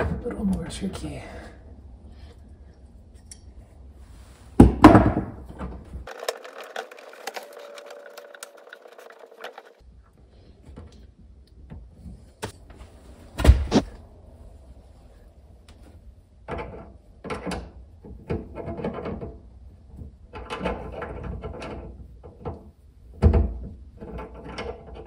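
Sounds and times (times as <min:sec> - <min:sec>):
loud thunks: 0:13.4 - 0:13.8.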